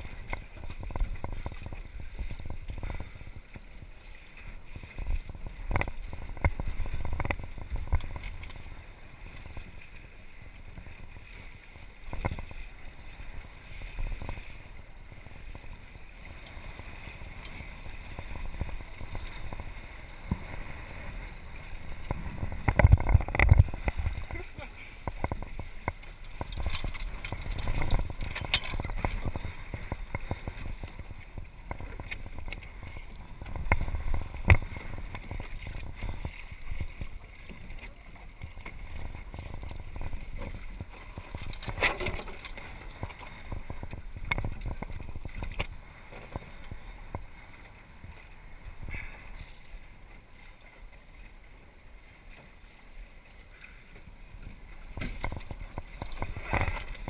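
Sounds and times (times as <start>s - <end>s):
water lapping against hull: 0.0s - 57.0s
wind buffeting microphone: 4.6s - 49.4s
knocks from boat: 54.9s - 56.8s.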